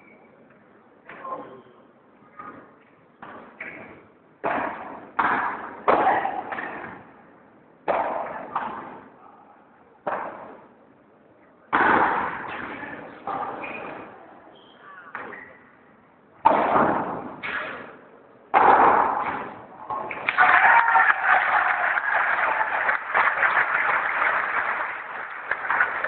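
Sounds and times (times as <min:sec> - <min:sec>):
ball knocks echoing in hall: 0:02.4 - 0:07.2, 0:07.8 - 0:09.2, 0:10.0 - 0:10.8, 0:11.7 - 0:14.1, 0:16.4 - 0:20.4.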